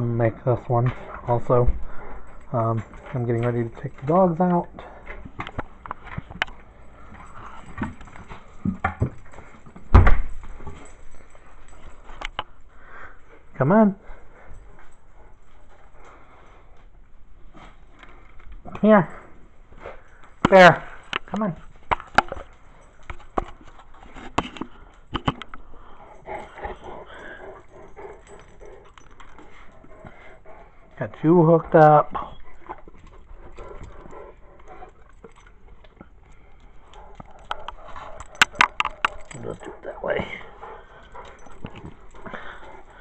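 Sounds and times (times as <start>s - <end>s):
dog feet clicking and scuffling: 0.0s - 43.0s
rustling and handling knocks: 37.1s - 42.9s.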